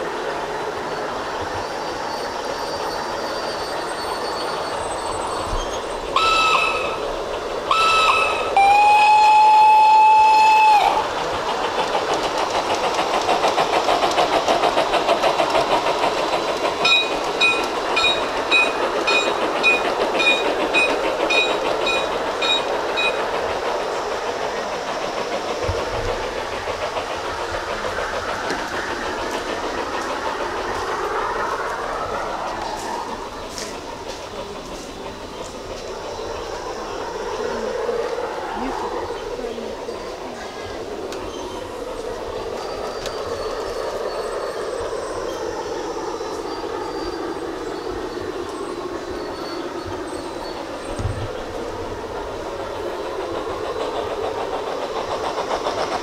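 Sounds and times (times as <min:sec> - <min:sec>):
train wheels clattering on track: 0:00.0 - 0:56.0
model train whistle: 0:06.2 - 0:07.1, 0:07.7 - 0:11.0.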